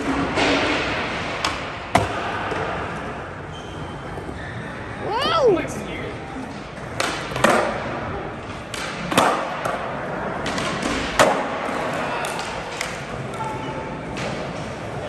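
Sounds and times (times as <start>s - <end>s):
skateboards clacking on concrete: 6.4s - 15.0s.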